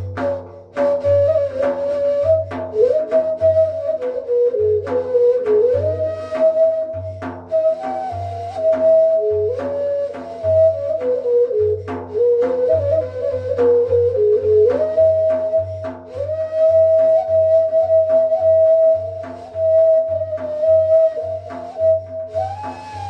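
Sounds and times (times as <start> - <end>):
steady drum beat: 0.0 - 3.5
reed flute melody: 0.0 - 23.0.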